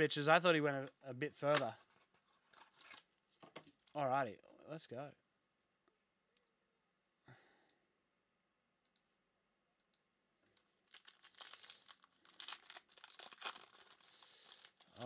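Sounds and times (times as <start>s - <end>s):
foil wrapper tearing and crinkling: 2.5s - 3.1s, 10.6s - 15.0s.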